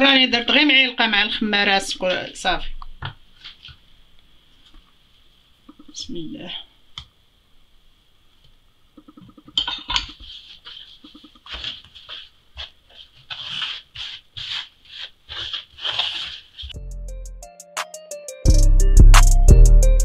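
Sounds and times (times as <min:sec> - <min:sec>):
hands rubbing flour in wooden bowl: 0:10.1 - 0:16.8.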